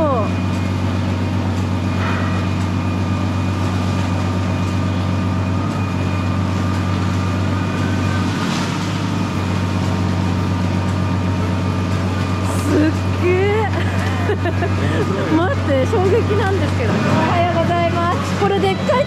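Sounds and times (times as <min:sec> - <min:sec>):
boat engine hum: 0:00.0 - 0:19.0.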